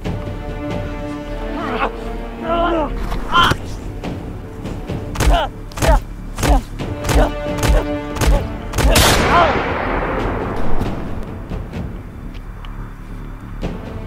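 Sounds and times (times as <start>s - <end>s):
low music drone: 0.0s - 14.0s
man crying out: 1.5s - 3.8s, 5.2s - 9.7s
pained grunts: 1.6s - 3.8s, 5.2s - 9.6s
heavy punch impacts: 5.2s - 11.0s.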